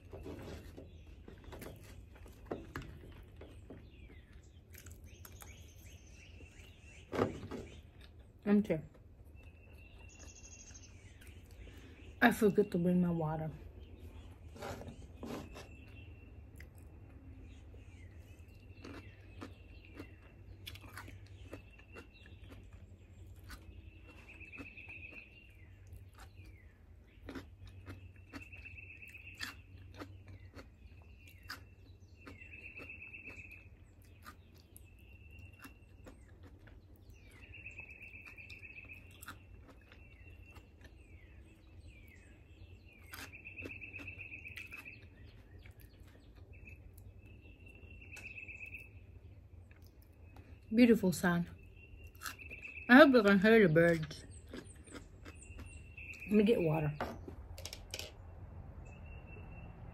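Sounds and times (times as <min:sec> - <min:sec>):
crunching and chewing cucumber: 0:00.0 - 0:12.1, 0:14.0 - 0:50.7, 0:51.5 - 0:56.6
songbird trilling: 0:37.0 - 0:57.2.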